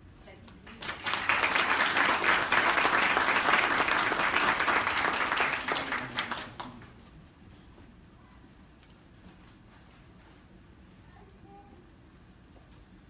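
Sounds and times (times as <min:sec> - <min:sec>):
audience applauding: 0:00.7 - 0:06.9.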